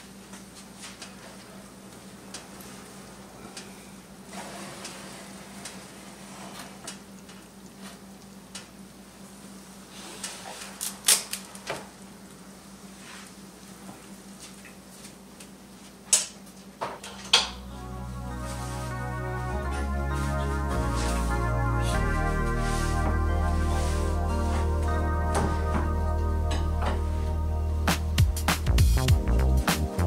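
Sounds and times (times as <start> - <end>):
background music: 17.5 - 30.0.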